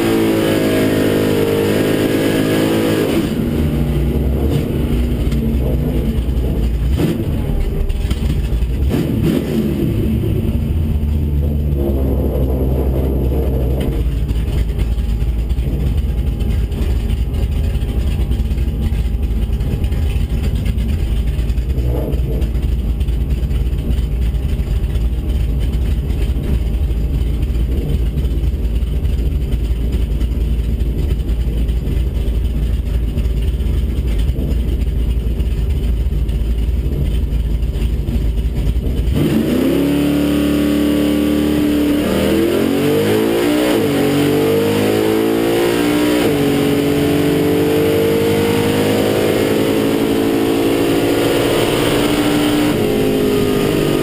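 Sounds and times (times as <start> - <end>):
car engine revving and shifting: 0.0 - 16.0, 38.6 - 54.0.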